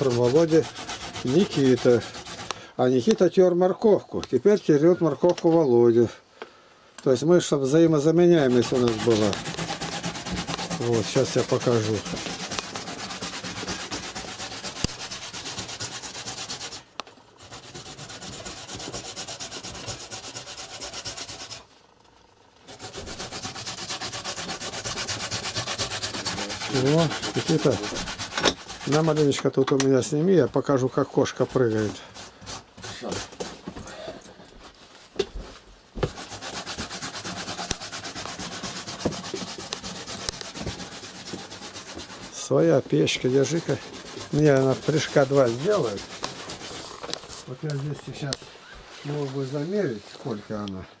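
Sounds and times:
carrot grating on grater: 0:00.0 - 0:02.5, 0:08.0 - 0:21.7, 0:22.7 - 0:29.5, 0:30.7 - 0:33.6, 0:36.0 - 0:47.4.

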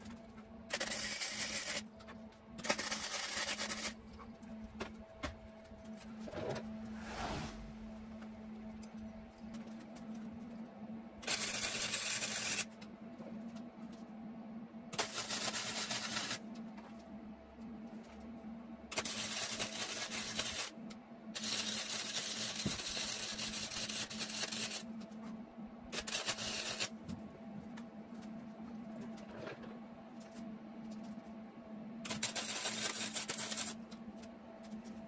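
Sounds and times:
steady low hum: 0:00.0 - 0:19.0, 0:24.6 - 0:35.0
arc welding crackle: 0:00.7 - 0:01.8, 0:02.6 - 0:04.0, 0:11.2 - 0:12.7, 0:15.0 - 0:16.4, 0:18.9 - 0:20.8, 0:21.4 - 0:24.9, 0:25.9 - 0:27.0, 0:32.1 - 0:33.9.

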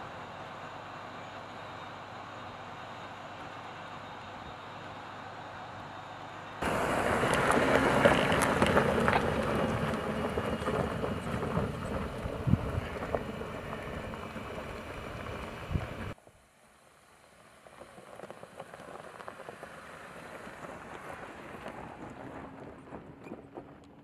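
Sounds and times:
truck engine running: 0:00.0 - 0:16.2
stones popping: 0:06.6 - 0:16.0
tyres crunching on gravel: 0:06.6 - 0:16.2.

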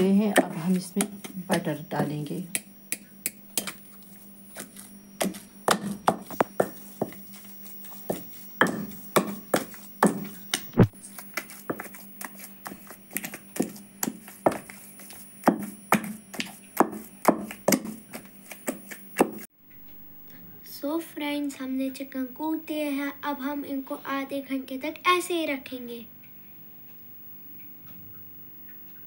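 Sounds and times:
wooden pestle pounding in mortar: 0:05.2 - 0:07.2, 0:08.0 - 0:12.0, 0:12.6 - 0:19.4.

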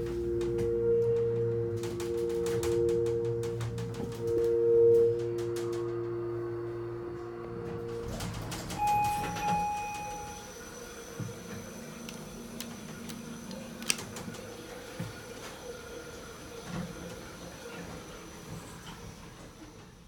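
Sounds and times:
electronic tone: 0:00.0 - 0:15.1
elevator doors sliding with hum: 0:00.0 - 0:20.0.

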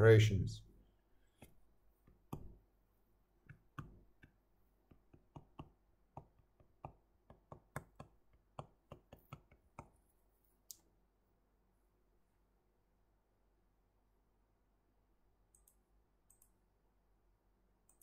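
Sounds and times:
stylus tapping tablet screen: 0:01.3 - 0:02.7, 0:03.4 - 0:10.1.

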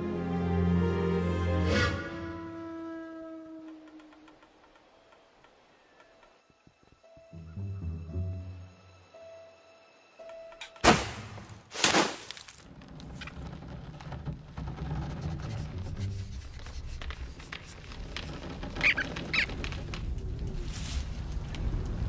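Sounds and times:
low rumbling noise: 0:12.7 - 0:22.0
short high squeaks: 0:18.6 - 0:19.6.

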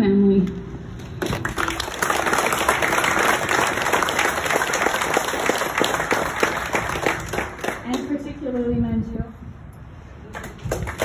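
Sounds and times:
crowd applauding: 0:01.2 - 0:08.1, 0:10.3 - 0:11.0.

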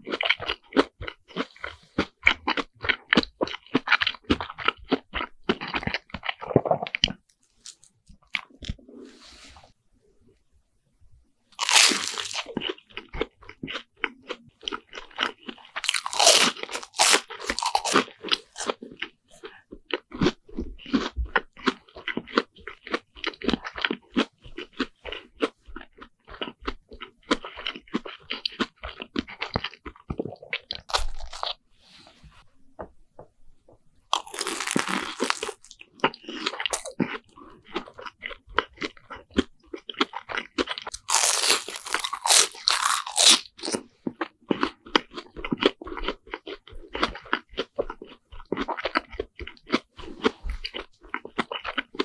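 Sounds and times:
crunching and chewing food: 0:00.0 - 0:09.2, 0:11.5 - 0:31.6, 0:33.7 - 0:52.0.

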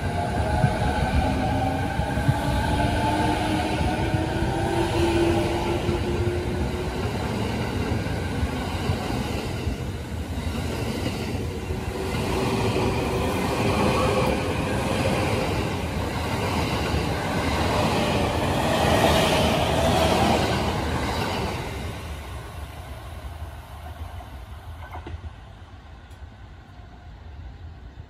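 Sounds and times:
train wheels on rails: 0:00.0 - 0:26.8.

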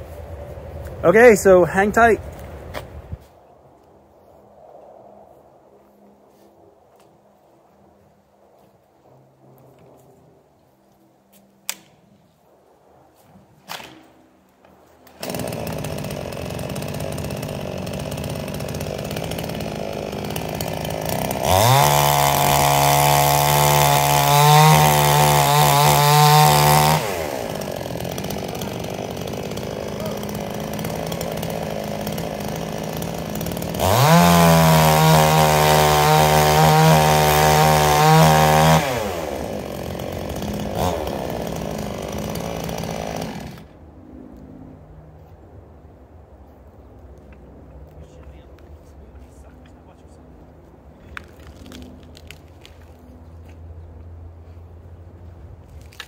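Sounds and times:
chainsaw cutting logs: 0:13.6 - 0:43.8, 0:50.4 - 0:56.0
chainsaw starting and revving: 0:15.0 - 0:43.8.

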